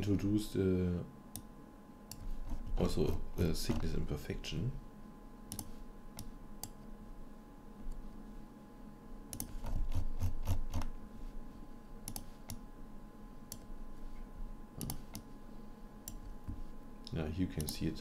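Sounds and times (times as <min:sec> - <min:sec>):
faint steady hum: 0:00.0 - 0:18.0
computer mouse clicking: 0:02.1 - 0:02.9, 0:05.5 - 0:06.8, 0:09.3 - 0:10.9, 0:12.0 - 0:12.6, 0:14.8 - 0:15.3, 0:16.0 - 0:16.6.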